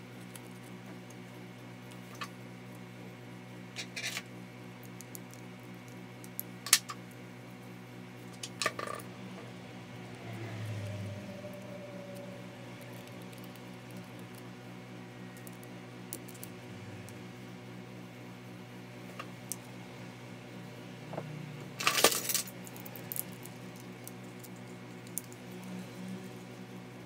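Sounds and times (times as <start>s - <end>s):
steady low hum: 0.0s - 27.0s
metal parts clinking: 21.8s - 22.5s.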